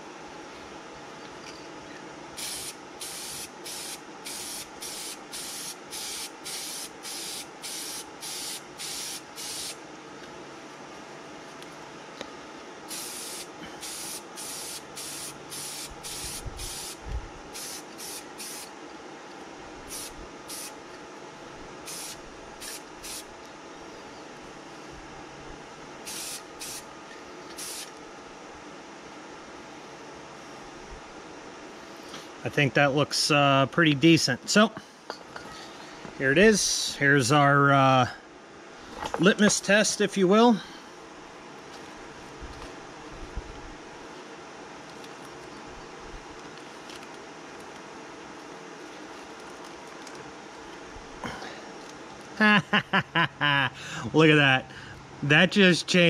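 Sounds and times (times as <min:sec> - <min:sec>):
steady low hum: 0:00.0 - 0:56.0
spray paint can spraying: 0:02.4 - 0:09.8, 0:12.9 - 0:18.7, 0:19.9 - 0:20.8, 0:21.8 - 0:23.3, 0:26.1 - 0:26.8, 0:27.5 - 0:27.9.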